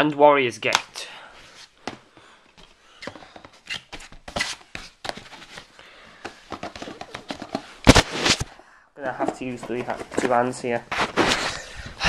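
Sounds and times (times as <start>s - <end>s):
plastic cases clicking and scraping: 1.8s - 8.5s, 9.1s - 11.6s.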